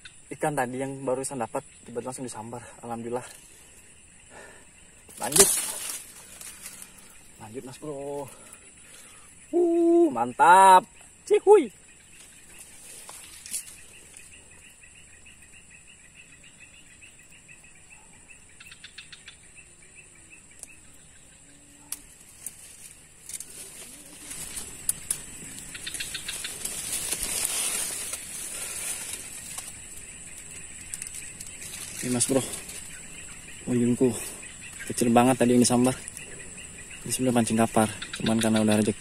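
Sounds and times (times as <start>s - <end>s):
birds trilling: 0.0s - 39.0s
high-pitched insect drone: 0.0s - 39.0s
pulsing insect trills: 0.0s - 39.0s
small ticks: 4.8s - 9.6s, 11.9s - 33.6s, 34.2s - 39.0s
rustling noise: 22.2s - 33.1s.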